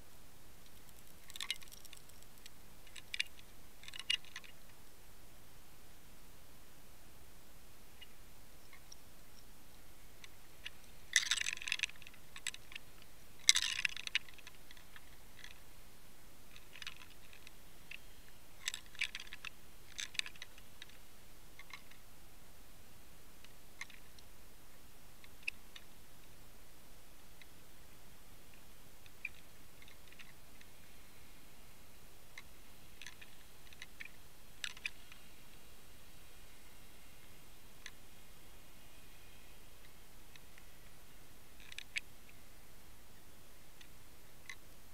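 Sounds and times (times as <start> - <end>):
faint hiss: 0.0 - 44.9
underwater clicks and crackles: 0.6 - 4.6.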